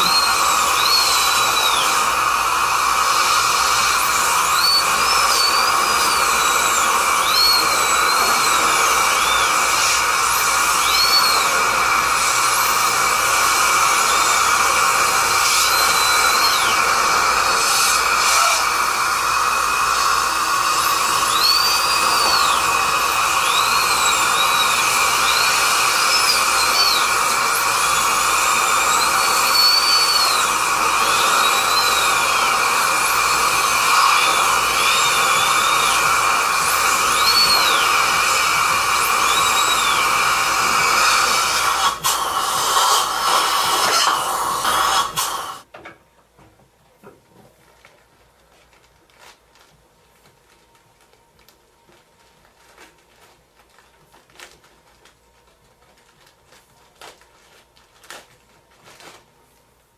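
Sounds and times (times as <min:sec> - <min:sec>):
dental drill whining: 0:00.0 - 0:45.7.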